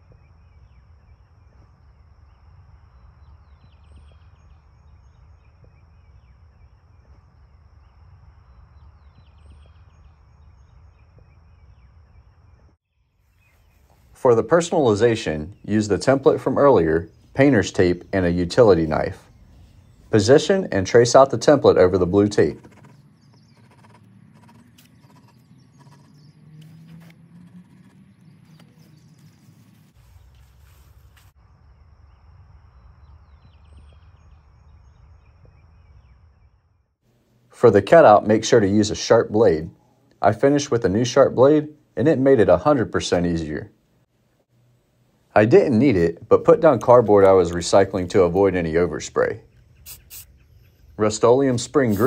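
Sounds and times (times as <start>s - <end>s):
low wind rumble: 0.0s - 12.8s, 13.4s - 37.0s
bird singing: 0.0s - 30.6s, 31.5s - 37.0s, 37.7s - 43.7s, 45.4s - 52.0s
pencil tracing on paper: 22.5s - 26.3s, 26.9s - 28.7s
high insect-like whine: 49.8s - 50.4s.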